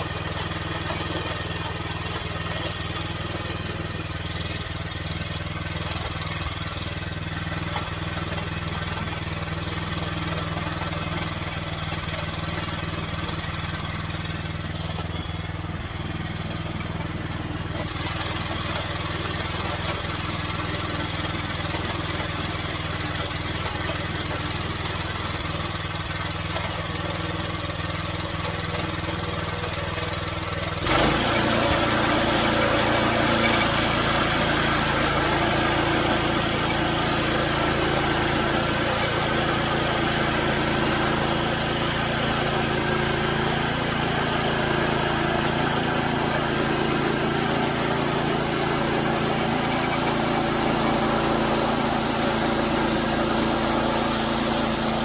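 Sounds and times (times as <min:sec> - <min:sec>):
sawmill gasoline engine running: 0:00.0 - 0:55.0.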